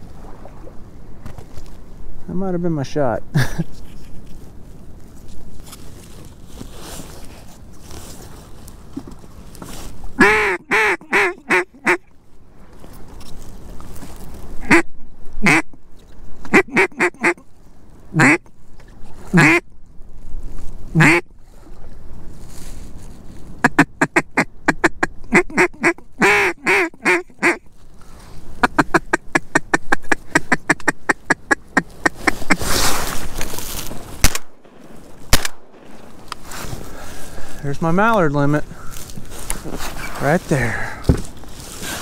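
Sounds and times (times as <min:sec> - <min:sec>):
duck call quacks: 0:10.2 - 0:12.0, 0:14.6 - 0:15.7, 0:16.5 - 0:17.4, 0:18.2 - 0:18.5, 0:19.3 - 0:19.6, 0:21.0 - 0:21.2, 0:23.6 - 0:27.6, 0:28.6 - 0:32.6
shotgun shots: 0:34.2 - 0:36.0.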